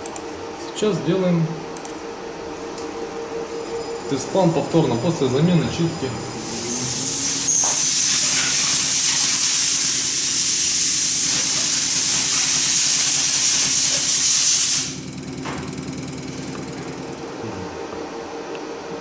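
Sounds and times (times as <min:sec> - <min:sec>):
test bench pump hum: 0:00.0 - 0:19.0
high-pressure fuel spray hiss: 0:06.4 - 0:15.0.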